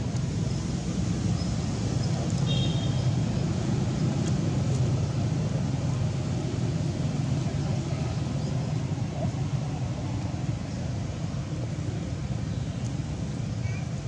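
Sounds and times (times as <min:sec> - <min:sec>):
low rumbling background noise: 0:00.0 - 0:14.0.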